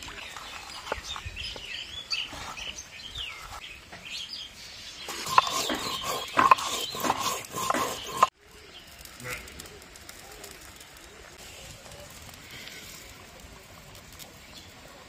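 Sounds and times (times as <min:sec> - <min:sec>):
birds chirping: 0:00.0 - 0:09.8
stone grinding block scraping: 0:05.1 - 0:08.3.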